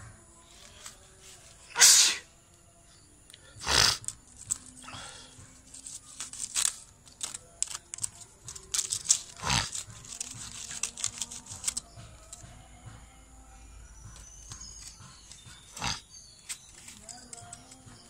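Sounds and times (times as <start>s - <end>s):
cat sneezing: 1.7s - 2.2s
crinkling and clicking rustles: 4.0s - 12.7s, 14.1s - 18.0s.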